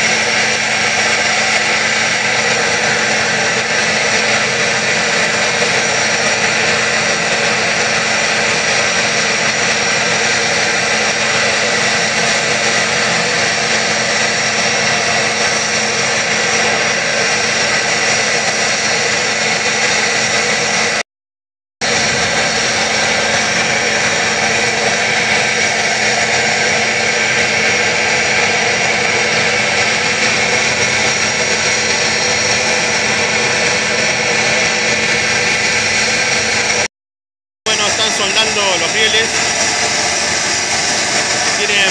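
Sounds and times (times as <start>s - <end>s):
welding equipment running: 0.0s - 21.0s, 21.8s - 36.9s, 37.7s - 41.9s.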